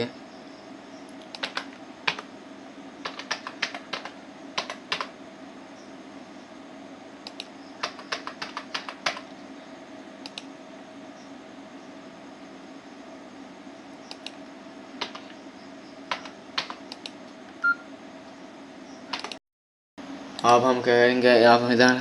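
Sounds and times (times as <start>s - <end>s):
steady low hum: 0.0s - 19.4s
keyboard key clicks: 1.1s - 2.2s, 3.0s - 5.1s, 19.1s - 19.4s.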